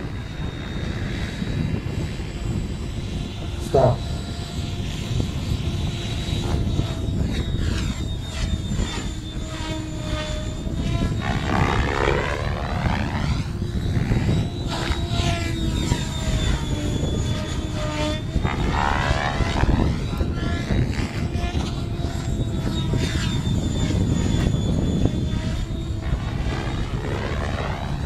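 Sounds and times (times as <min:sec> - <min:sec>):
model helicopter rotor whine: 0:00.0 - 0:28.0.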